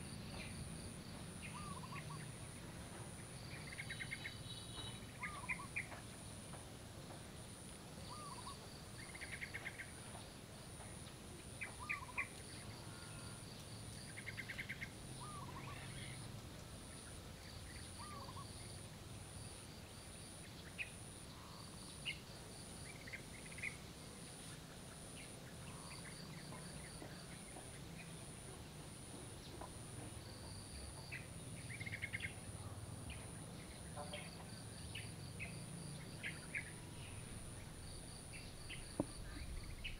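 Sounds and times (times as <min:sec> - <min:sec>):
birds chirping: 0:00.3 - 0:06.1, 0:08.0 - 0:10.4, 0:11.0 - 0:13.3, 0:14.0 - 0:18.8, 0:24.8 - 0:39.9.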